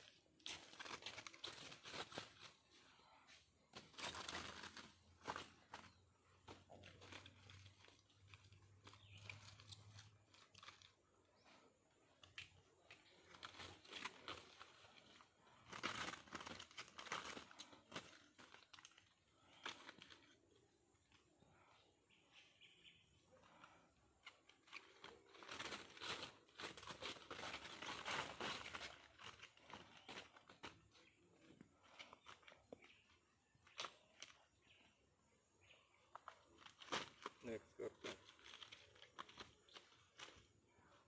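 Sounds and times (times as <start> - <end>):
dry leaves rustling and crackling: 0.4 - 2.7, 12.8 - 20.3, 24.6 - 31.0.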